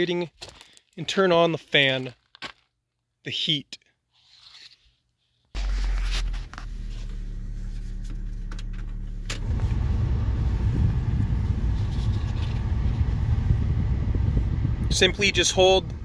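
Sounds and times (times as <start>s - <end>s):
heater fan air rushing: 5.6s - 16.0s
truck engine idling: 5.6s - 16.0s.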